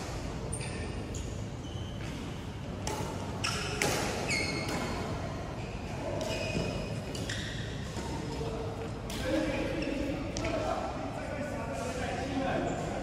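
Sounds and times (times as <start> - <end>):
sports shoes squeaking: 0.4 - 8.5, 9.3 - 10.4
racket striking shuttlecock: 2.8 - 4.9.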